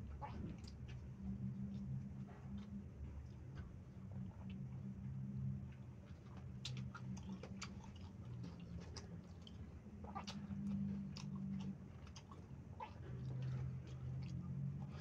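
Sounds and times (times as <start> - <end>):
mouth chewing: 5.7 - 15.0.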